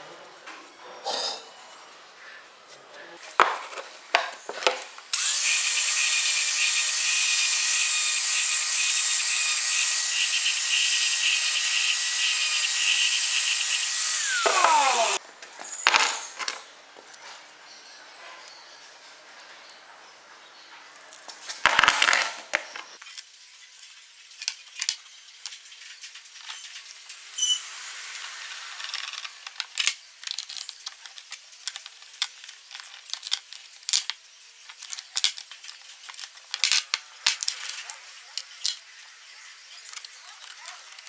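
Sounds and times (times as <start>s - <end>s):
metal parts rattling: 28.8s - 38.8s.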